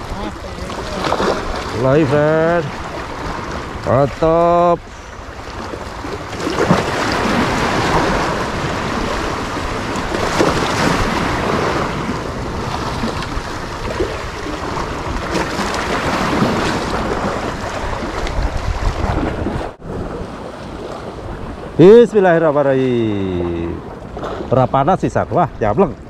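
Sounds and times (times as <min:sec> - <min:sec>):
waves splashing against rocks: 0:00.0 - 0:26.0
wind on microphone: 0:04.8 - 0:21.8.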